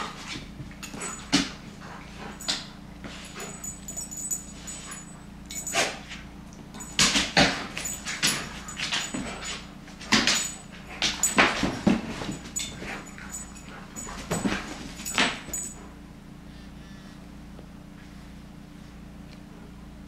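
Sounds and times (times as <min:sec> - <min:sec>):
toy scuffling and thumping: 0:06.8 - 0:15.8.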